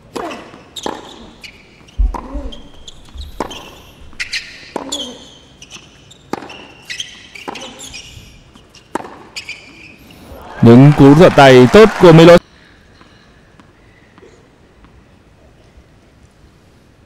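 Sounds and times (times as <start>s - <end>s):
shoe squeaks: 0.2s - 10.1s
tennis ball knocks: 2.0s - 2.7s.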